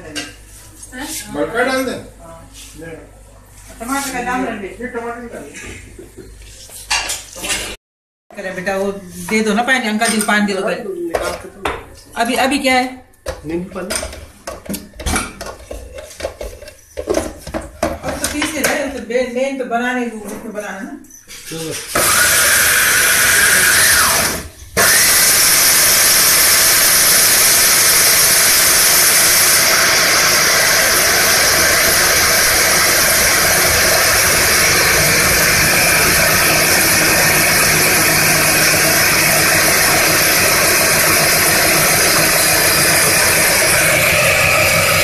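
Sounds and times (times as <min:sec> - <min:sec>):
food processor motor grinding: 0:22.0 - 0:45.0.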